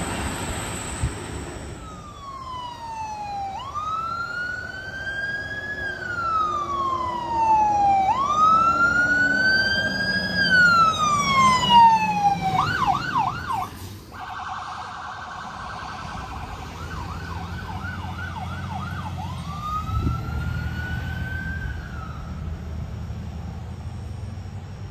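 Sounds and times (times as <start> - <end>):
fire truck sirens wailing and yelping: 0.0 - 24.9
truck engines rumbling: 0.0 - 24.9.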